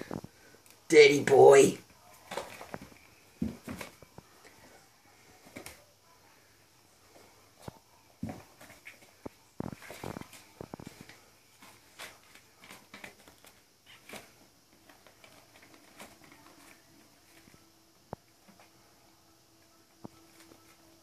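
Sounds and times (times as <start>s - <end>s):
kittens scampering on newspaper: 2.0s - 5.9s, 7.1s - 18.8s.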